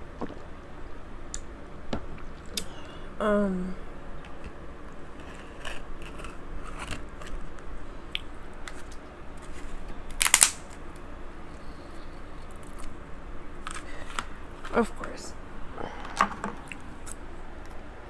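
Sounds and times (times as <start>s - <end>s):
crab shell cracking: 10.1s - 10.8s.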